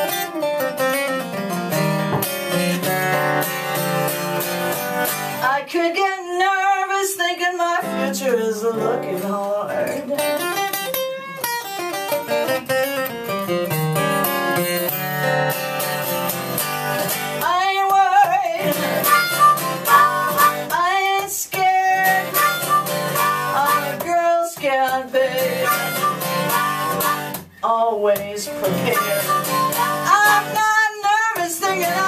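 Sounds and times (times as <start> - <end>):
strummed acoustic guitar: 0.0 - 32.0
harmonica solo: 18.6 - 20.8, 22.0 - 24.0, 25.4 - 27.4, 28.7 - 30.6.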